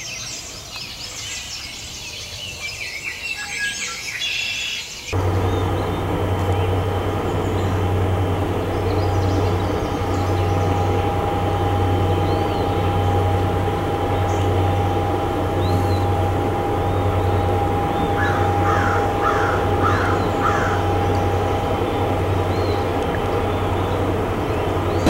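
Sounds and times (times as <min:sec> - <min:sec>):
small birds chirping: 0:00.0 - 0:25.0
boat diesel engine drone: 0:05.1 - 0:25.0
crow cawing: 0:18.2 - 0:20.9.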